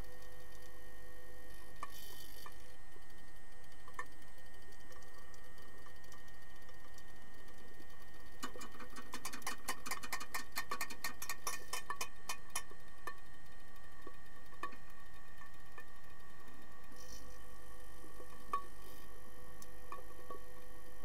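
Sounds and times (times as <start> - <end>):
steady background hum: 0.0 - 21.0.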